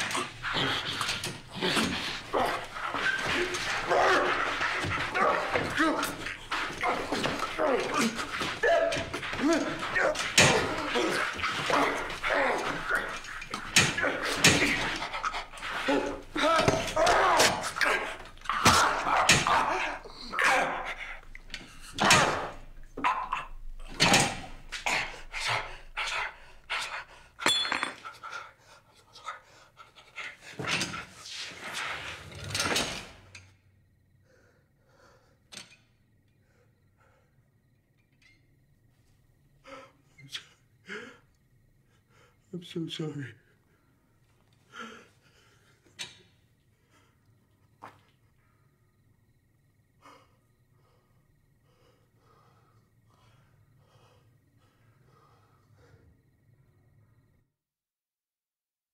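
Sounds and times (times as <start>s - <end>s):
heavy panting and gasping breaths: 0.0s - 5.2s, 13.1s - 16.7s, 43.6s - 47.4s, 49.8s - 56.5s
metal chain clink: 27.4s - 28.1s
man breathing heavily: 34.1s - 35.5s, 43.6s - 46.0s, 49.8s - 56.5s.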